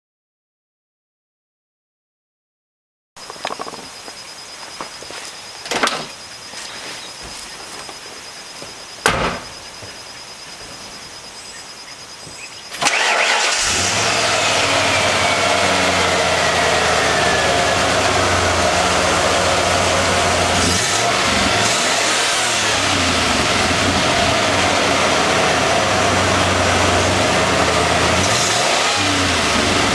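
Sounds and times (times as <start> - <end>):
falling whine: 3.2 - 29.9
knocks: 9.0 - 10.0
engine cranking and idling: 12.7 - 29.9.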